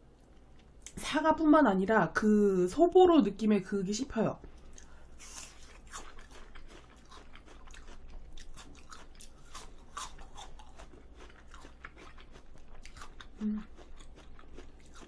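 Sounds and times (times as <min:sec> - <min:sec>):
person chewing crisp apple: 0:04.6 - 0:15.0.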